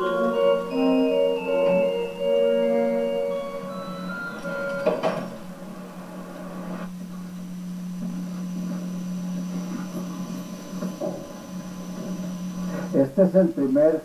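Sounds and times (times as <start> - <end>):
background music: 0.0 - 6.8
low hum: 0.0 - 13.1.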